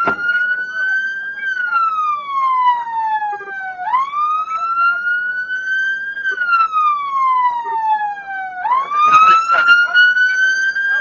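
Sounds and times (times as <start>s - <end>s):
sharp knocks: 0.0s - 0.3s
police siren wailing: 0.0s - 11.0s.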